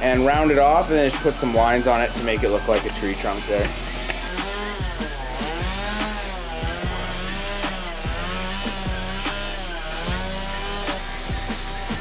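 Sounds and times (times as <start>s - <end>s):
chainsaw cutting wood: 3.6s - 12.0s.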